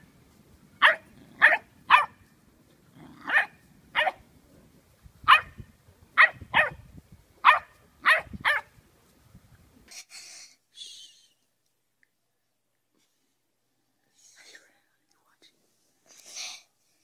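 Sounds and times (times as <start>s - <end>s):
dog barking: 0.8s - 2.2s, 3.2s - 4.2s, 5.3s - 5.6s, 6.2s - 6.8s, 7.4s - 8.7s.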